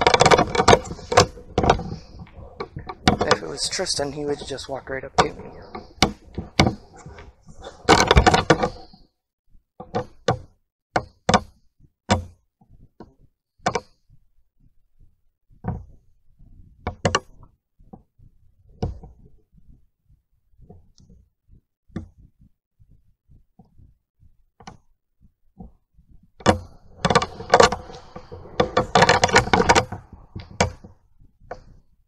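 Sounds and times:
sharp knocks and clicks: 0.0 - 9.0, 9.8 - 14.2, 15.6 - 18.1, 18.7 - 19.3, 24.6 - 24.9, 25.6 - 31.8.

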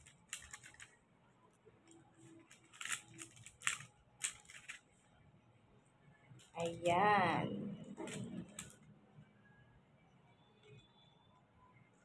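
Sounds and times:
foil paper crinkling: 2.3 - 4.8.

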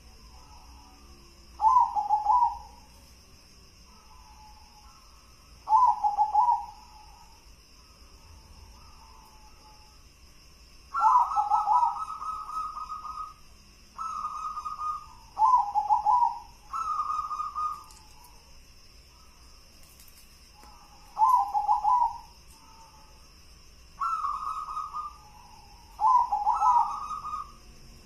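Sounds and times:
dove cooing: 1.6 - 2.9, 5.6 - 7.3, 10.9 - 13.4, 14.0 - 18.4, 20.6 - 23.1, 24.0 - 27.6.

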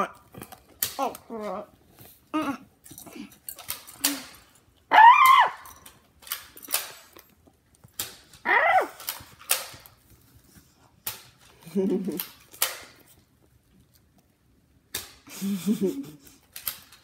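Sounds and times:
dog whining: 4.0 - 5.8, 8.4 - 9.1.

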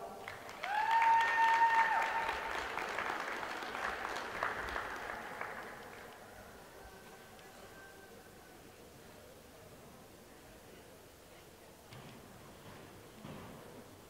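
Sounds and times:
small crowd applauding: 0.0 - 8.0.

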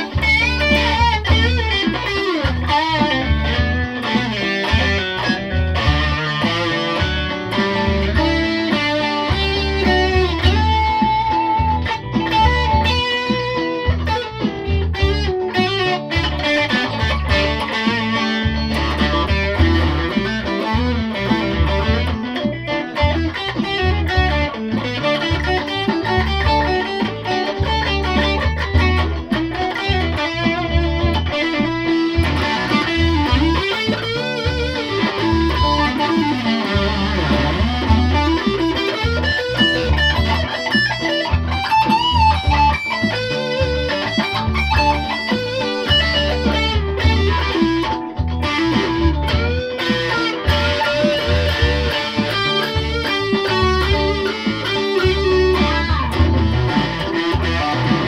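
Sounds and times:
electric guitar through amplifier: 0.0 - 58.0.

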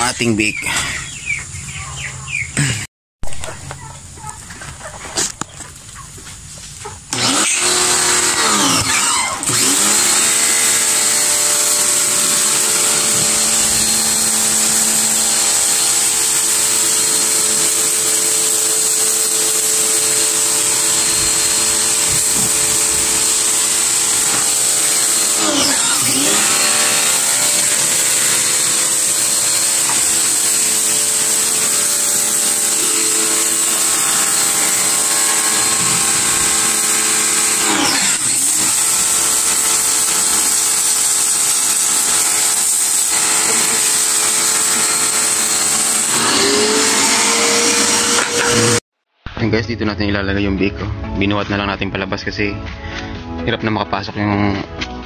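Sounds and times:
pressure washer motor humming: 7.1 - 48.8
water spraying on concrete: 26.0 - 34.5, 38.4 - 47.0.

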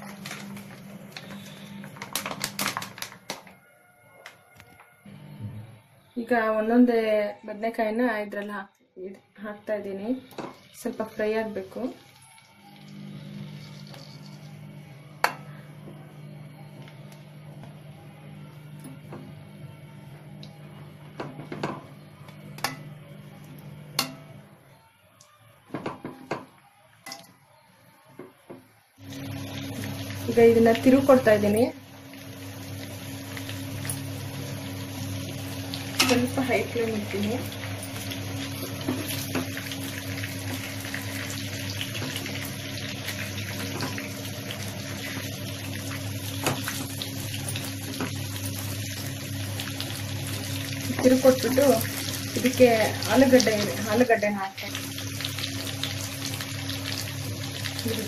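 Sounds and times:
oil crackling: 0.0 - 3.6, 29.0 - 58.0
eggplants sizzling in oil: 9.6 - 14.8, 29.0 - 58.0
utensils knocking on frying pan: 24.0 - 24.3.

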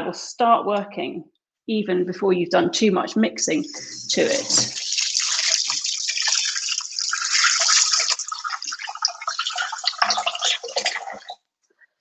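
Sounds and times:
tap water splashing into sink: 4.0 - 11.4.

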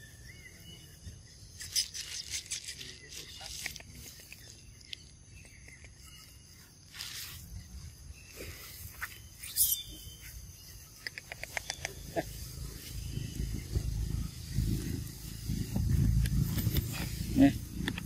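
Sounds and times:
small clicks: 11.0 - 12.0.

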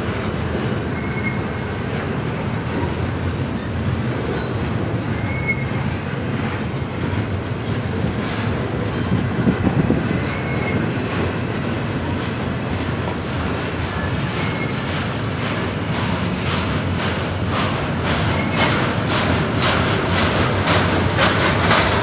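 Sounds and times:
train clatter: 0.0 - 22.0
train wheels rumbling on rail: 0.0 - 22.0
faint wheel squeals: 0.9 - 1.6, 4.3 - 5.9, 7.8 - 11.0, 13.9 - 14.9.

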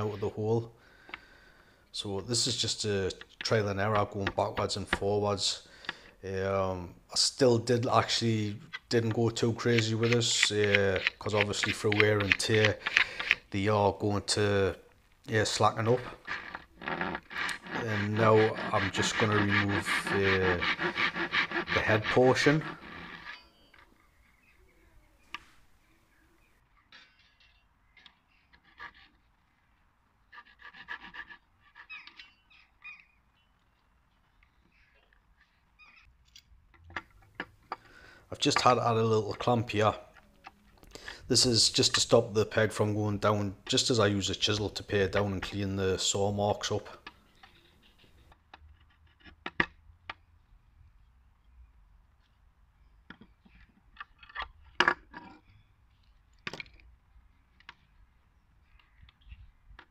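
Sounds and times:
wooden peg set on bench: 2.6 - 5.2, 7.8 - 24.2, 30.3 - 50.2, 52.9 - 58.0
chisel paring wood: 8.7 - 13.5, 16.2 - 23.4
handsaw rasping through wood: 15.8 - 23.4.

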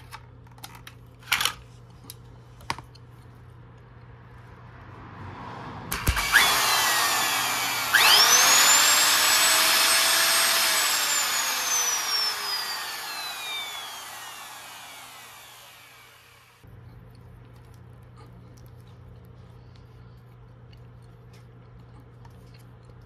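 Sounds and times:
router motor whine: 5.9 - 16.6.

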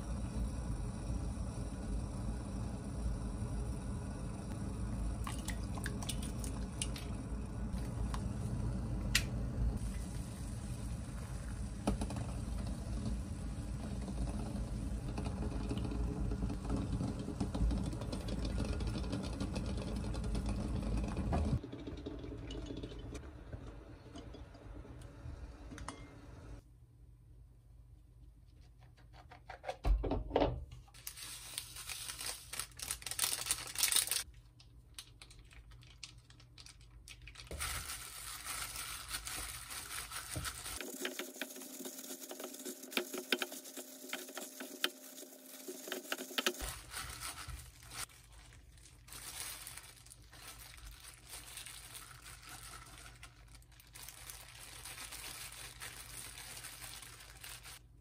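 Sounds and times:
plastic gloves crinkling: 30.9 - 58.0
hands squeezing rice: 37.5 - 57.8.

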